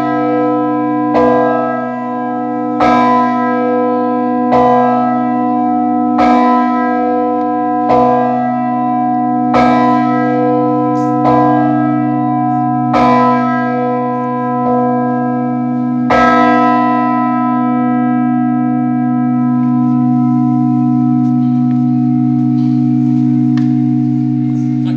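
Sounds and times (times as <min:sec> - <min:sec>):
church bell ringing: 0:00.0 - 0:24.9
deep sustained bell hum: 0:17.0 - 0:24.9.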